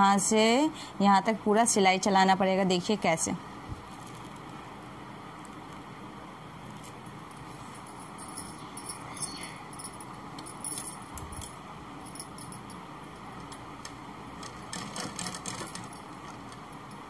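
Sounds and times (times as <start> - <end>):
steady background hiss: 0.0 - 17.0
sewing machine clicking and rattling: 14.4 - 16.6.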